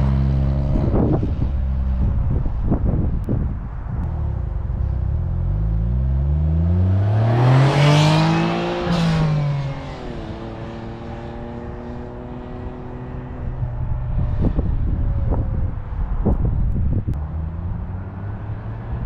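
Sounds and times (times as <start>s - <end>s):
car engine revving and idling: 3.9s - 19.0s.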